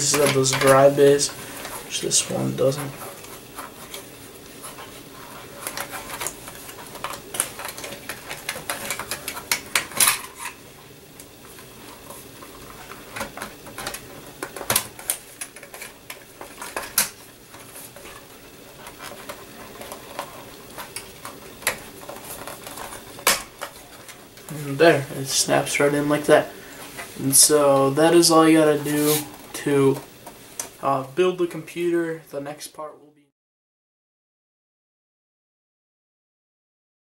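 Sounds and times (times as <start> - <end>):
plastic scraping against sheet metal: 0.0 - 10.6, 11.6 - 30.3.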